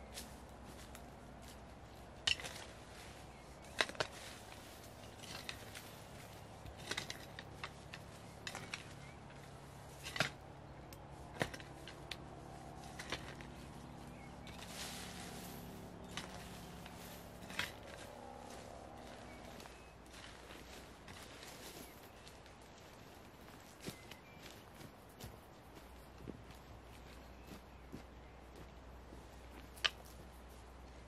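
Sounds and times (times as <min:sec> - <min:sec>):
garden tool scraping soil: 0:02.2 - 0:10.4, 0:11.3 - 0:22.0.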